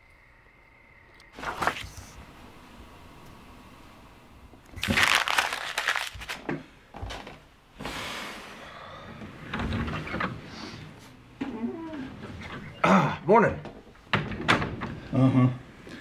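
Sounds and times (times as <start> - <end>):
paper crumpling: 4.8 - 6.4
wooden door opening: 14.1 - 15.1.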